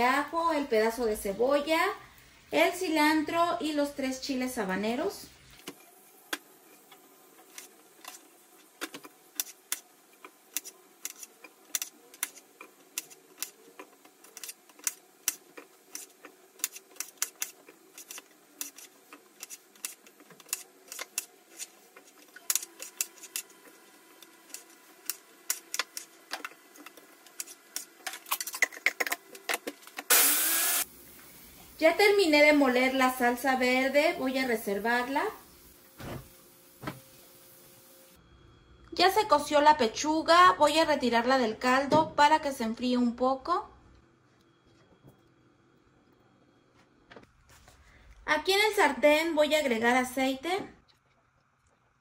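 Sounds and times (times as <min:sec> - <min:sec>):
faint steady hum: 0:30.8 - 0:52.0.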